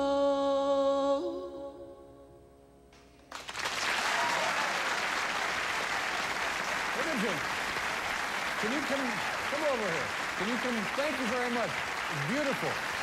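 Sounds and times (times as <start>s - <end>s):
audience applause: 3.3s - 13.0s.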